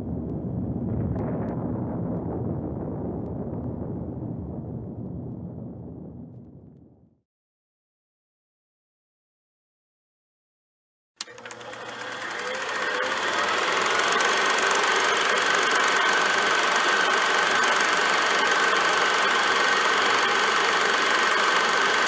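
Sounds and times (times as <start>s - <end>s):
click: 11.2s - 12.2s
thin steady whine: 11.2s - 22.0s
harsh crackling drone: 12.2s - 22.0s.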